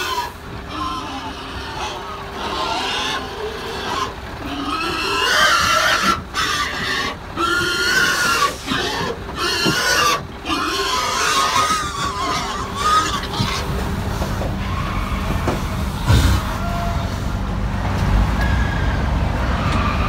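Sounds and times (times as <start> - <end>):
pigs squealing and screaming: 0.0 - 17.3, 18.4 - 20.0.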